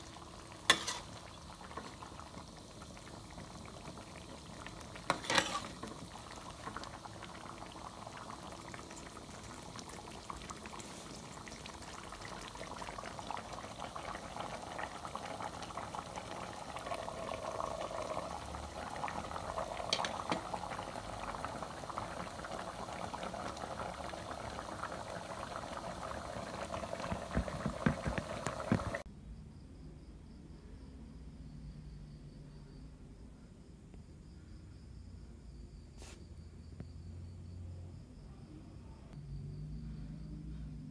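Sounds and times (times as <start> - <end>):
curry simmering and bubbling: 0.0 - 29.1.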